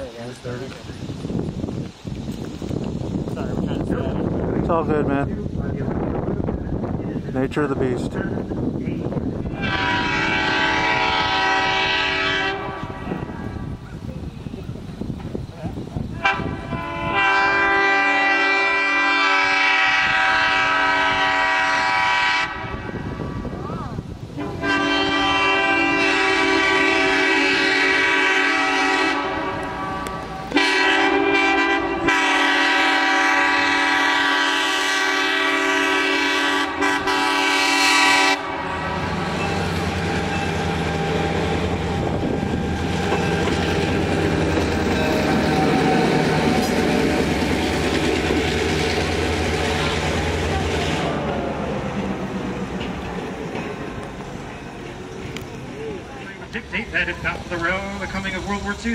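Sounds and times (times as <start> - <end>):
locomotive horn blasts: 9.5 - 13.3, 16.2 - 23.1, 24.4 - 47.0.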